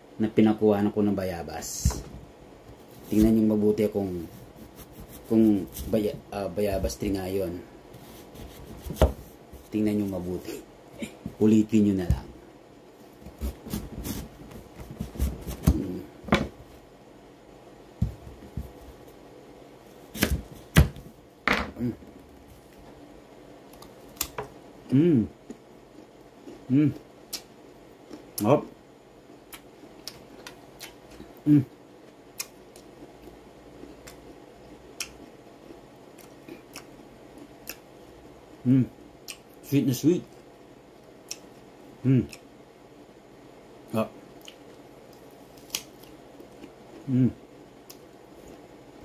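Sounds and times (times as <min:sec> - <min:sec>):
knife cutting through fruit: 0:04.2 - 0:06.1, 0:13.2 - 0:16.0, 0:20.1 - 0:21.0
person chewing crisp fruit: 0:23.7 - 0:28.4, 0:32.0 - 0:37.9, 0:41.2 - 0:41.6, 0:44.3 - 0:48.7.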